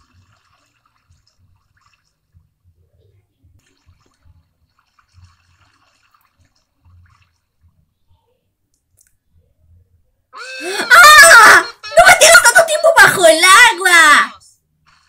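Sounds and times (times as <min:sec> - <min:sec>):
faint bubbling water: 0:00.0 - 0:08.6.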